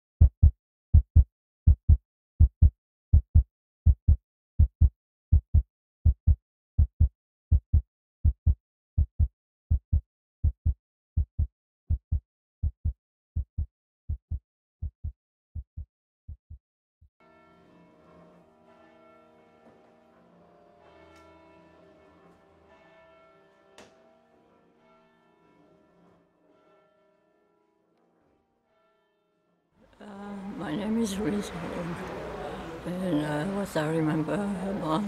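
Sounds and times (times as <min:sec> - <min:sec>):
heartbeat thumps: 0:00.2 - 0:16.6.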